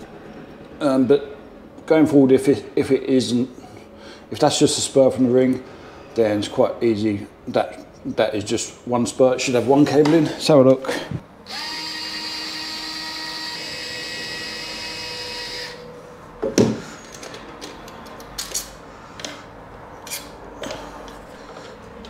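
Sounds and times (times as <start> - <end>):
cordless screwdriver motor whining: 11.4 - 15.8.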